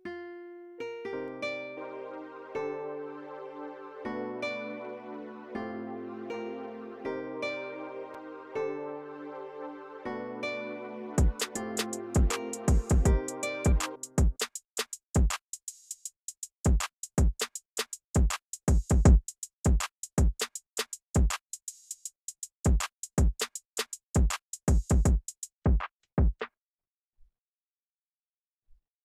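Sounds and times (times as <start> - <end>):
deep kick drum hits: 12.2 - 14.4
high hi-hat ticks: 14.0 - 25.5.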